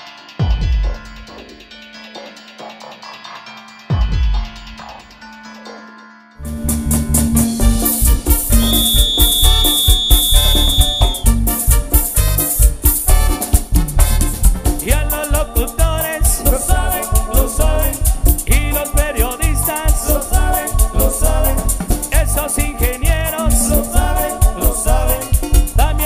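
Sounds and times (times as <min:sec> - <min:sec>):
latin dance music: 0:00.0 - 0:05.8, 0:06.4 - 0:26.0
person singing: 0:14.8 - 0:26.0.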